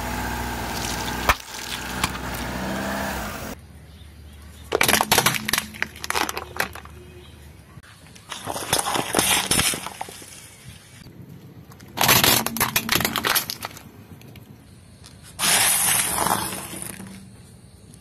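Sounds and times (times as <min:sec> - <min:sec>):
candies crunching under tyre: 0:00.7 - 0:02.5, 0:04.7 - 0:07.0, 0:08.2 - 0:10.6, 0:11.7 - 0:13.9, 0:15.4 - 0:17.3
toy crunching under tyre: 0:00.7 - 0:02.5, 0:04.7 - 0:07.2, 0:08.1 - 0:10.6, 0:11.7 - 0:17.6
foil cups crinkling under tyre: 0:00.8 - 0:02.4, 0:04.7 - 0:07.2, 0:11.6 - 0:14.5.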